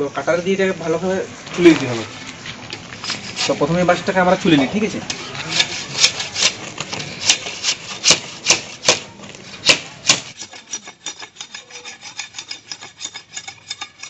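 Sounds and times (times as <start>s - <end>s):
blade scraping bamboo: 1.5s - 4.0s, 5.0s - 14.0s.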